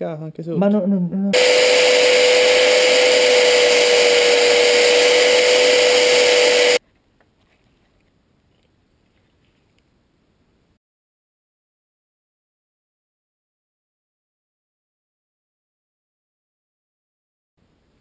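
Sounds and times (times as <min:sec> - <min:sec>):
angle grinder whining: 0:01.4 - 0:06.8.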